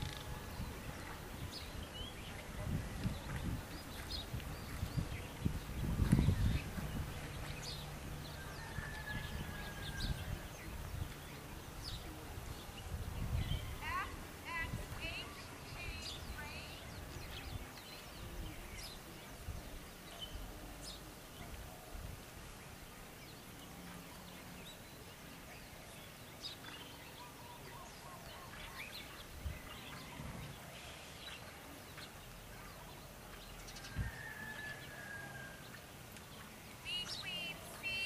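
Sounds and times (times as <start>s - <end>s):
bird chirps: 23.7s - 38.0s.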